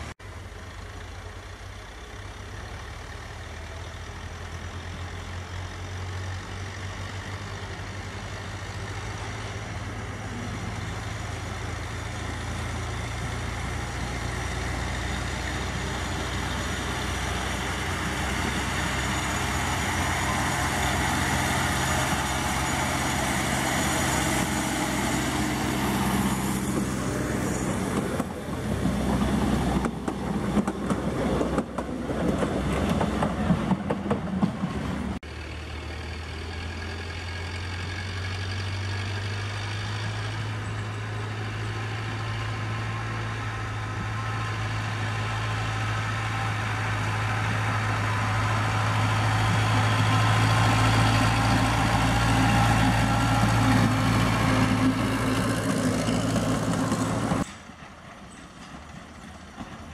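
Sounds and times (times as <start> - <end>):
diesel locomotive approaching: 0.0 - 59.9
diesel train engine: 0.0 - 59.9
train cars clattering: 15.6 - 35.2, 50.0 - 59.9.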